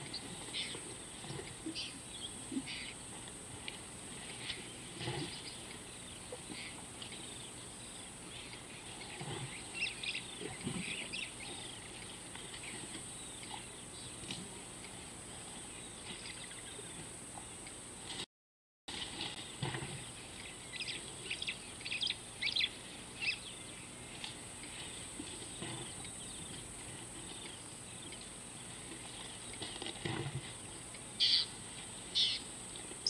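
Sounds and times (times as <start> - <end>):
small birds chirping: 0.0 - 3.1, 4.2 - 14.4, 20.0 - 29.9, 30.6 - 33.0
elephant chewing grass: 0.0 - 17.0, 18.9 - 20.6, 23.9 - 32.0
steady high-pitched hiss: 0.0 - 18.2, 18.9 - 33.0.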